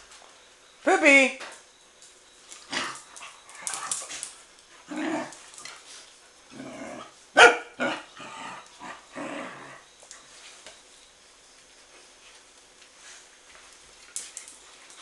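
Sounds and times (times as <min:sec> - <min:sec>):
young dogs barking: 0:07.4 - 0:08.1.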